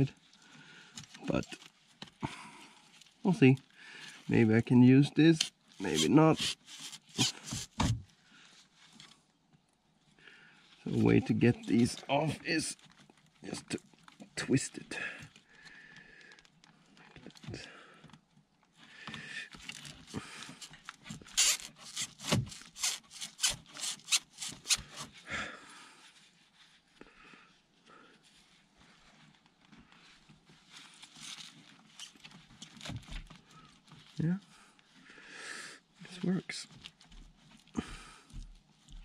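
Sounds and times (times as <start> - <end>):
pliers scraping and clicking on fitting: 20.6 - 25.0.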